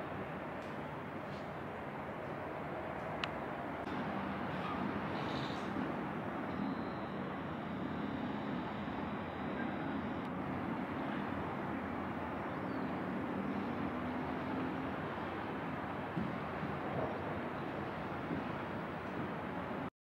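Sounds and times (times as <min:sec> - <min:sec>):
ship machinery rumble: 0:00.0 - 0:12.4
wind: 0:00.0 - 0:19.9.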